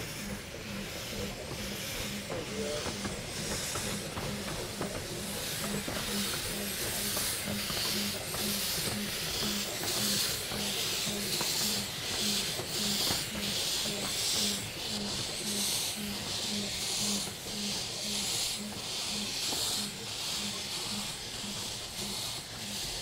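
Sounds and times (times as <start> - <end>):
rhythmic steam hissing: 0.0 - 23.0.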